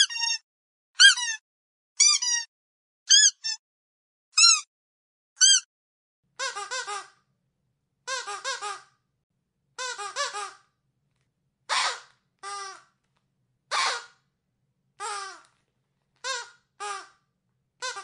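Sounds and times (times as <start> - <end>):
squeaky dog toy squeaking: 0.0 - 0.4, 1.0 - 1.4, 2.0 - 2.5, 3.1 - 3.6, 4.4 - 4.7, 5.4 - 5.7, 6.4 - 7.2, 8.1 - 8.9, 9.8 - 10.7, 11.7 - 12.9, 13.7 - 14.2, 15.0 - 15.5, 16.2 - 17.2, 17.8 - 18.0.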